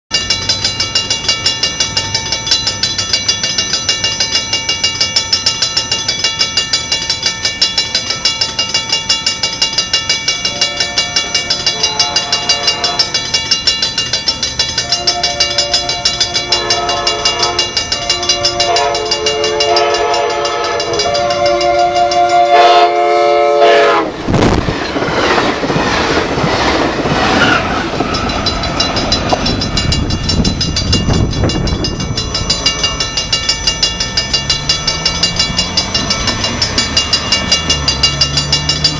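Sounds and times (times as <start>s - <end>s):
crossing bell ringing: 0.1s - 38.9s
train passing with wheel noise: 0.1s - 38.9s
train air horn blasts: 10.4s - 13.2s, 14.8s - 24.2s.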